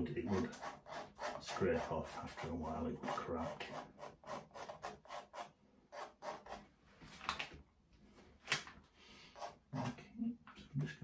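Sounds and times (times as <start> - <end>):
palette knife scraping paint: 0.0 - 6.7.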